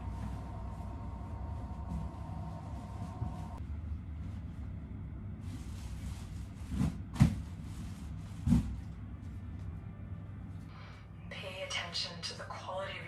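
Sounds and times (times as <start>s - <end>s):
steady low hum: 0.0s - 13.0s
bedding rustling: 5.4s - 9.4s.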